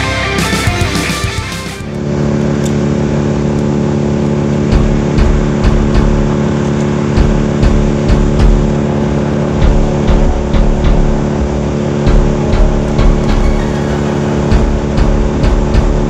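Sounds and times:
low thumps and knocks: 4.7 - 16.0.

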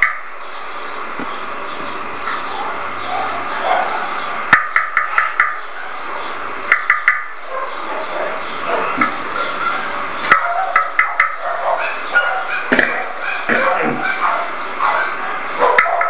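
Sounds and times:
steady hiss: 0.0 - 10.4.

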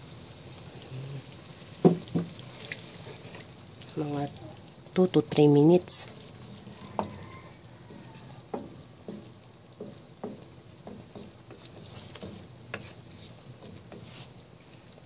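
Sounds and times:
faint sauce sizzle: 0.0 - 15.0
wooden spatula scraping pan: 6.0 - 15.0.

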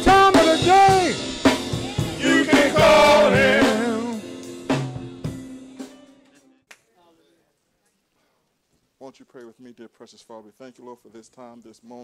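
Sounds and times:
drum hits: 0.0 - 5.5
men's vocal group singing: 2.1 - 4.2.

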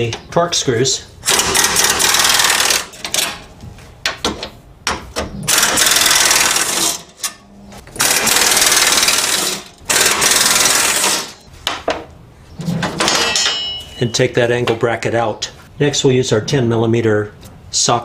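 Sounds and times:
pneumatic air ratchet: 1.2 - 3.0, 8.0 - 11.4.

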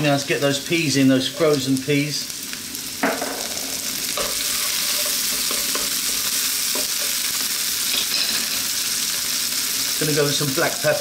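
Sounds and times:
vegetables sizzling in oil: 0.0 - 11.0
knocks on a pan: 3.0 - 3.7
wooden spoon stirring in pan: 3.5 - 10.0.

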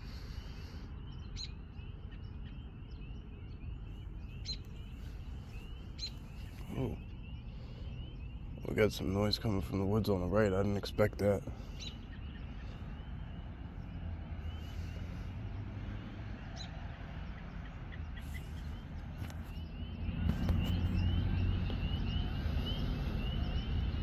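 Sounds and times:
high chirping calls: 0.0 - 15.4
steady low rumble: 0.0 - 16.0.

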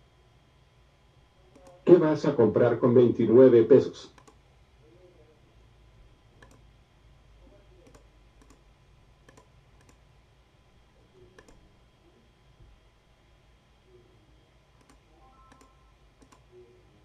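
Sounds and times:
computer mouse clicks: 1.5 - 1.8, 4.1 - 4.4, 6.4 - 6.7, 7.8 - 8.6, 9.2 - 10.0, 11.3 - 11.6, 14.8 - 16.5.

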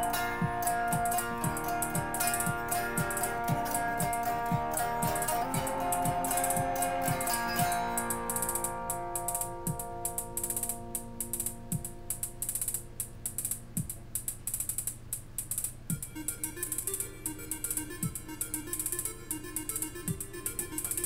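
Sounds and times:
electric guitar chord ringing: 0.0 - 14.0
picked guitar notes: 0.0 - 14.2, 15.9 - 21.0
fast high ticking: 0.0 - 21.0.

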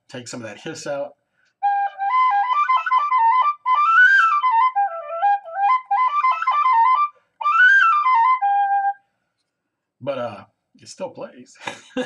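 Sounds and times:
tin whistle tune: 1.6 - 9.0.

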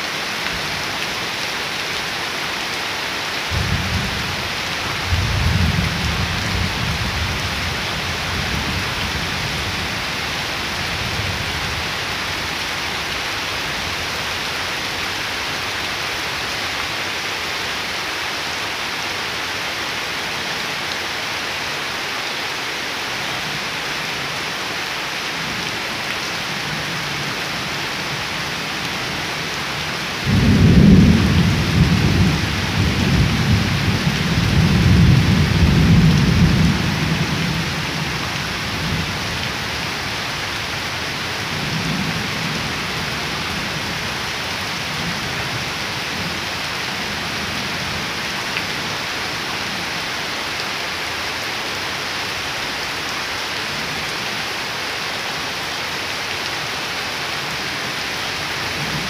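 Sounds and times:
rain falling on plants: 0.0 - 59.0
thunder rumbling: 30.2 - 37.6.

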